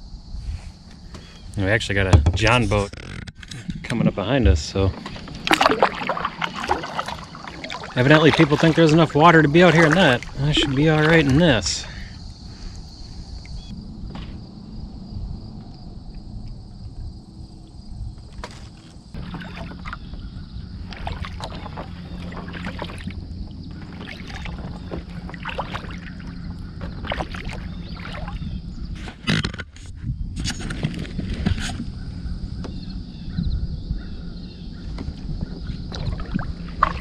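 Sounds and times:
paddle splashing in water: 4.9s - 12.7s, 18.4s - 29.3s, 35.0s - 37.0s
water dripping off paddle: 5.0s - 11.7s, 20.8s - 28.4s, 35.9s - 37.0s.

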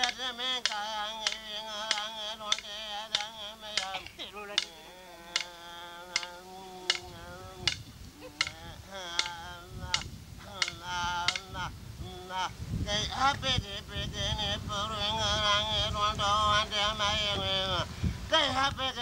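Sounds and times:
person singing long wavering notes: 0.0s - 19.0s
wind rumble on microphone: 6.6s - 19.0s.

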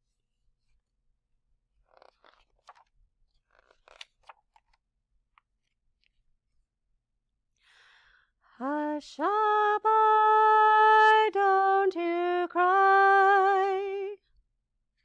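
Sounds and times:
book pages rustling: 1.7s - 6.7s.

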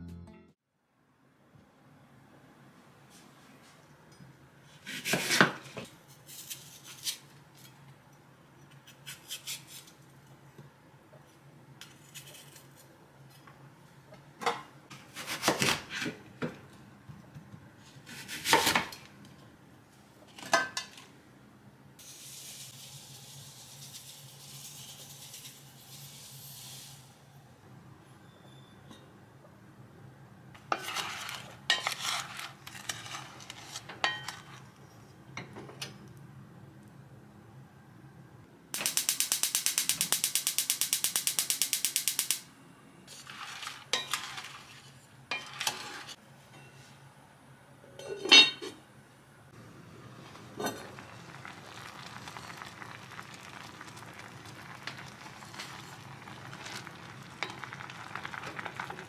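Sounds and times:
dishes and cutlery clinking: 48.0s - 48.8s
food sizzling: 49.6s - 59.0s.

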